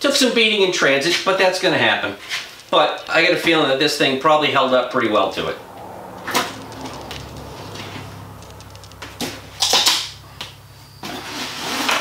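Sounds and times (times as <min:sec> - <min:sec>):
scraping and rustling of box: 0:11.0 - 0:12.0.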